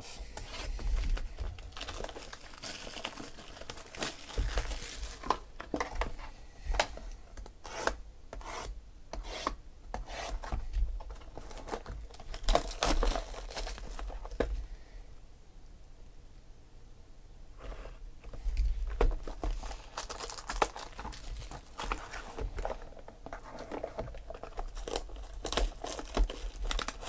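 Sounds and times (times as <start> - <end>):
plastic wrap crinkling and tearing: 0.4 - 5.6, 11.1 - 14.5, 18.8 - 27.0.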